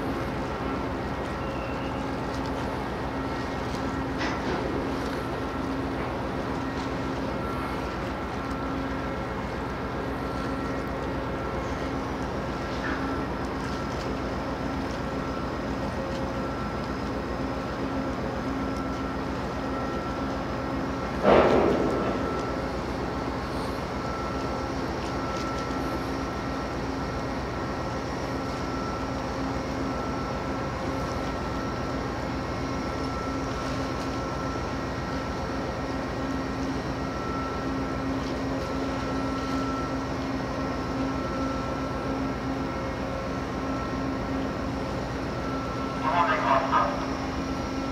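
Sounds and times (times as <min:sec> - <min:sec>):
ship engine rumble: 0:00.0 - 0:47.9
steady hum: 0:00.0 - 0:47.9.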